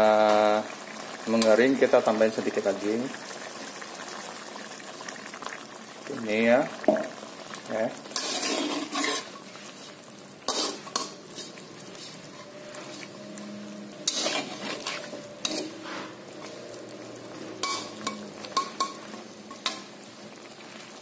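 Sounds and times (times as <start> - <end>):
sauce sizzling: 0.0 - 21.0
metal spatula scraping a wok: 8.1 - 16.6, 17.5 - 19.9.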